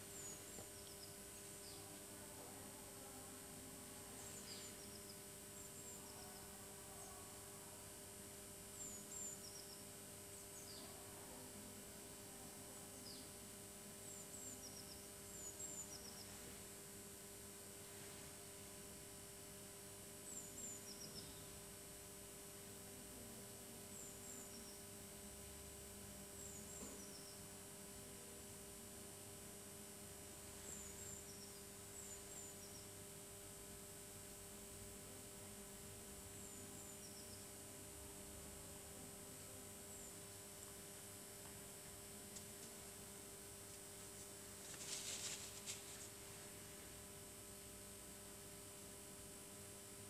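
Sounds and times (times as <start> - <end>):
faint steady hum: 0.0 - 50.0
faint high chirps: 4.1 - 7.8.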